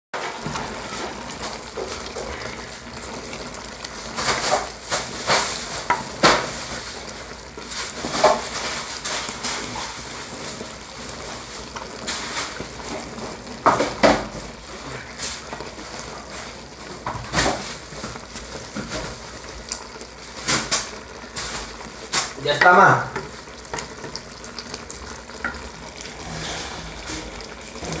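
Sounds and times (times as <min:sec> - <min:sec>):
syrup sizzling: 0:00.2 - 0:28.0
wooden spoon scraping clay pot: 0:23.2 - 0:28.0.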